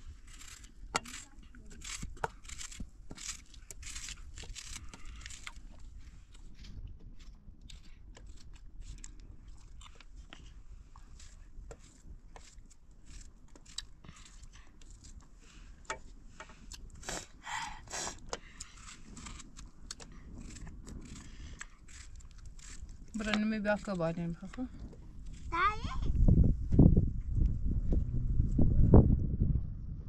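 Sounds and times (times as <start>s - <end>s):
knife scraping: 0.1s - 5.6s, 20.3s - 24.0s
knife cutting tomato: 0.2s - 5.7s.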